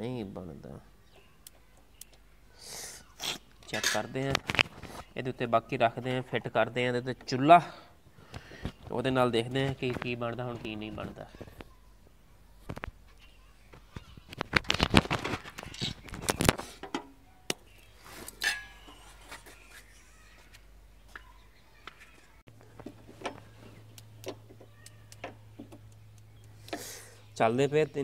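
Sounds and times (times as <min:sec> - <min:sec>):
metal stove parts clattering: 0:03.7 - 0:04.2, 0:18.3 - 0:19.0.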